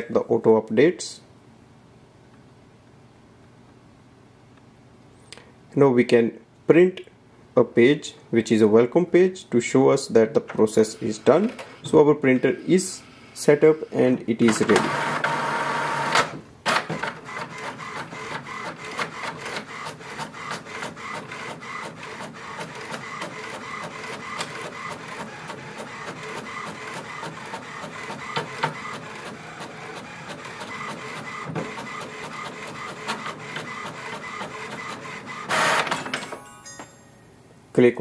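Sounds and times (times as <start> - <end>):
printer paper pickup clicks: 14.5 - 36.3.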